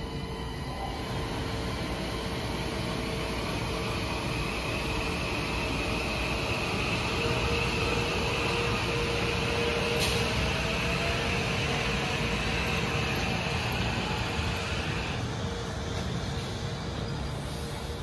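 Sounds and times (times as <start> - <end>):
train rolling past: 0.0 - 18.0.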